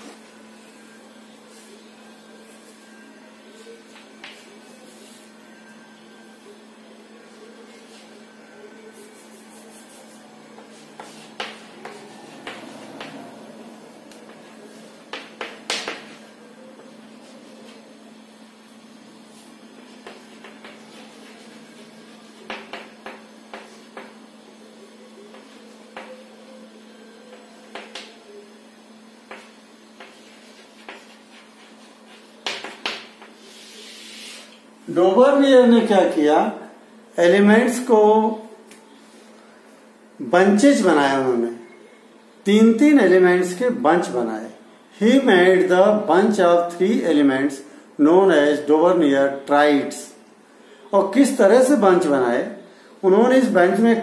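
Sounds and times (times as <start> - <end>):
steady low hum: 0.0 - 37.8
chalk tapping on chalkboard: 9.2 - 13.2, 15.1 - 16.2, 20.0 - 21.4, 22.4 - 24.2, 29.3 - 34.5.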